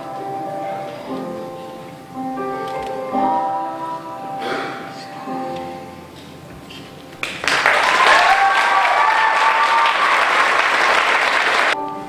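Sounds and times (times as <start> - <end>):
audience applause: 7.2 - 11.8
high cheers: 7.4 - 11.8.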